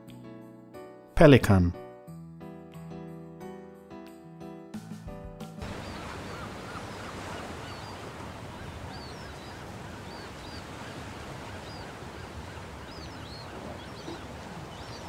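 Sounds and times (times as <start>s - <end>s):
birds chirping: 5.6s - 15.0s
low honk-like bird calls: 5.6s - 15.0s.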